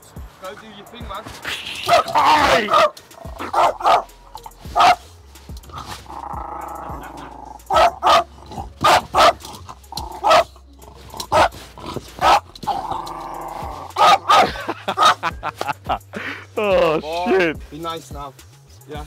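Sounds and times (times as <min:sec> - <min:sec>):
dog barking: 0:01.8 - 0:04.1, 0:04.7 - 0:05.1, 0:06.7 - 0:09.5, 0:10.1 - 0:10.6, 0:11.2 - 0:12.8, 0:14.0 - 0:15.4
dog growling: 0:01.9 - 0:05.0, 0:05.7 - 0:15.2.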